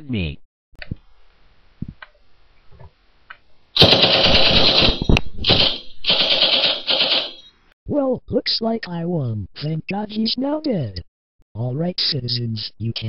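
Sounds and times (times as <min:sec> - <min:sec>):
submachine gun rapid fire: 0:03.8 - 0:07.4.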